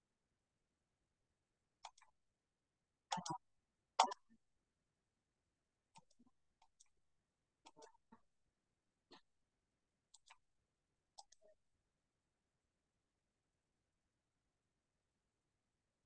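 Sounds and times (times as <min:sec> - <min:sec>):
computer mouse clicking: 0:01.8 - 0:02.1, 0:06.0 - 0:06.9, 0:07.7 - 0:07.9, 0:10.1 - 0:10.4, 0:11.2 - 0:11.5.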